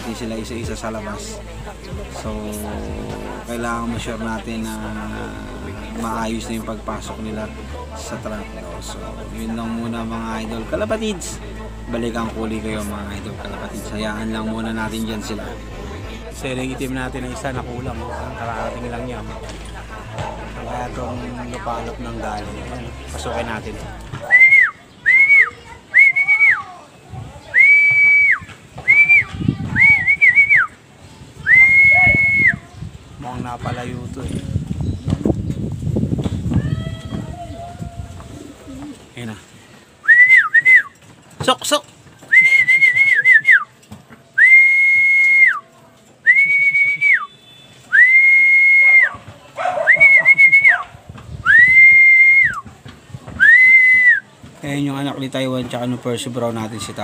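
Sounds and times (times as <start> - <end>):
man whistling short notes: 24.2 - 26.7, 27.5 - 30.7, 31.5 - 32.6, 40.0 - 41.0, 42.3 - 43.7, 44.4 - 49.2, 49.9 - 50.8, 51.4 - 52.6, 53.4 - 54.3.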